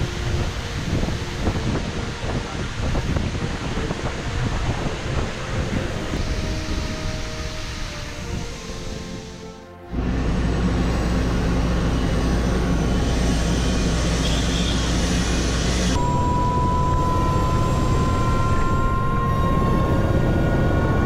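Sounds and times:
helicopter engine drone: 0.0 - 21.0
high whine rising in pitch: 5.6 - 21.0.

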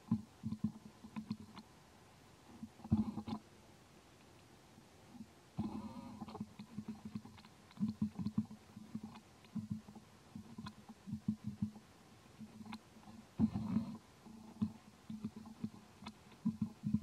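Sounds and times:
faint clicks: 0.0 - 1.7, 4.2 - 4.5, 5.2 - 11.8, 12.4 - 17.0.

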